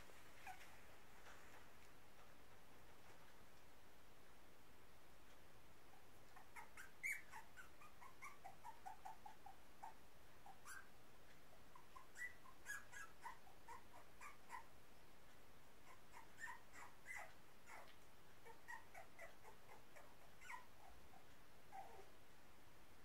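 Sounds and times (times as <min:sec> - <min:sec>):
puppies whimpering and squeaking: 0:00.4 - 0:00.8, 0:06.0 - 0:10.9, 0:11.7 - 0:14.7, 0:15.8 - 0:22.1.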